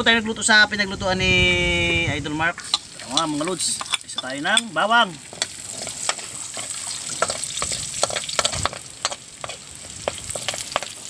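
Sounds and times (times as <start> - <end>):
garlic sizzling in hot oil: 2.6 - 11.0
metal spoon scraping a wok: 2.6 - 11.0.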